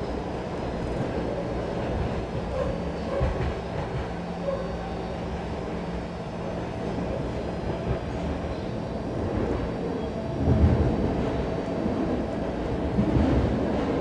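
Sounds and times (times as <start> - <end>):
wheels rumbling on rail: 0.0 - 14.0.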